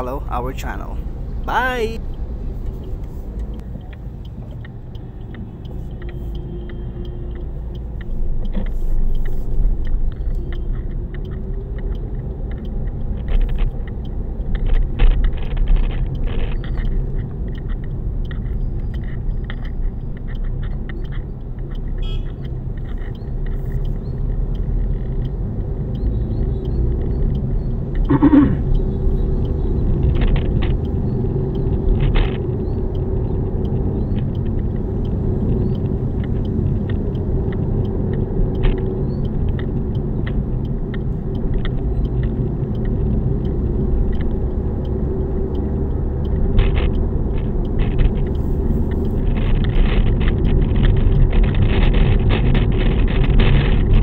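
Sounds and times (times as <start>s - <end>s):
low road rumble in car cabin: 0.0s - 54.0s
rosary hitting dash cam: 28.1s - 28.8s.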